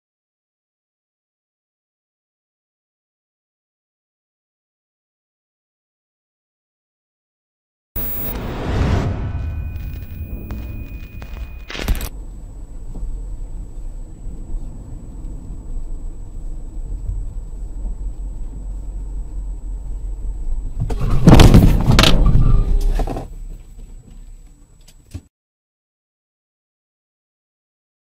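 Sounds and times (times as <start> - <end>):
loud crash: 8.0 - 12.1, 21.0 - 22.6
car road and engine rumble: 8.0 - 25.2.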